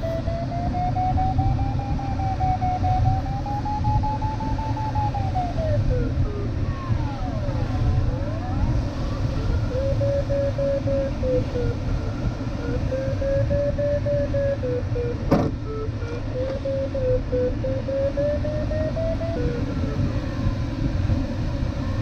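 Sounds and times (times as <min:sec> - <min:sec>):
variometer tone sliding in pitch: 0:00.0 - 0:22.0.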